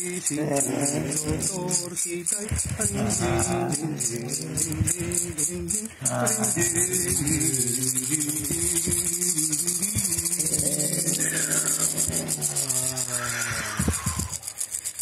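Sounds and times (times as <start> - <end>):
rattle shaken rapidly: 0.0 - 15.0
low wordless voice: 2.7 - 7.8.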